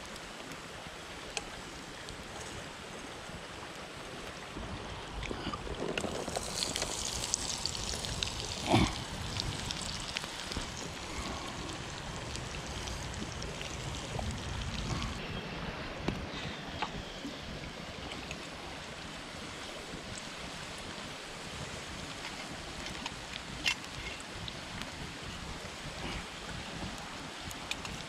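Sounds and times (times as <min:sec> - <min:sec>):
onions sizzling in oil: 0:06.2 - 0:11.0.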